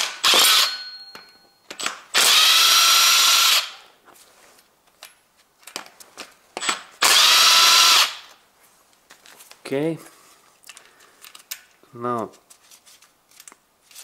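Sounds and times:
cordless power tool whining: 0.2s - 0.7s, 2.2s - 3.8s, 7.0s - 8.3s.

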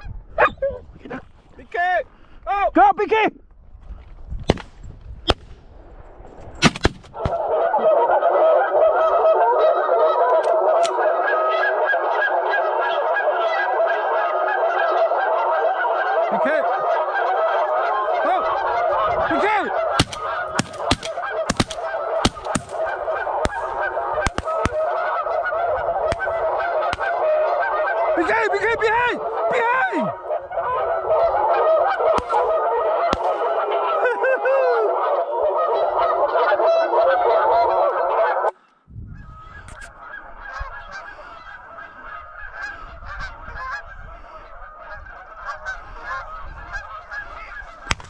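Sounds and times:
geese honking: 7.2s - 48.0s
sharp clicks: 20.0s - 22.8s.

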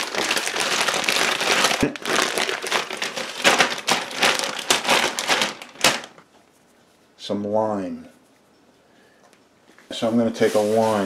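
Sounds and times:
plastic bag crinkling: 0.0s - 6.3s.

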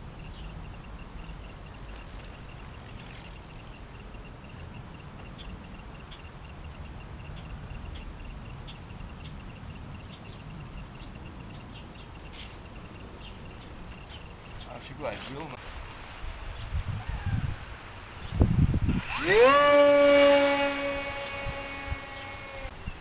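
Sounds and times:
rapid high chirping: 0.0s - 15.5s
wind rumbling on microphone: 15.6s - 23.0s.

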